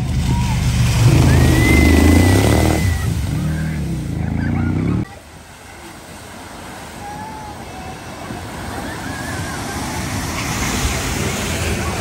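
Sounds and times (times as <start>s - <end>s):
wash of water: 0.0s - 12.0s
motorcycle engine revving hard: 0.8s - 5.0s
hiss of water spray: 5.4s - 12.0s.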